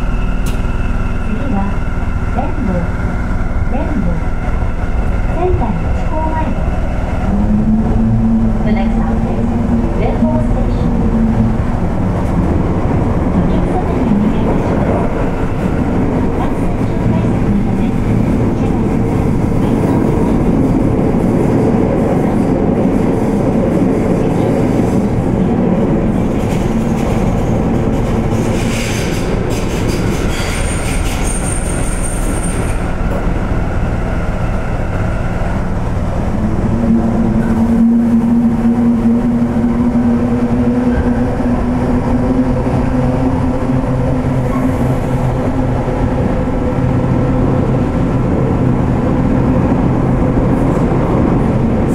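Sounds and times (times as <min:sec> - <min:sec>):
train wheels rumbling: 0:00.0 - 0:51.9.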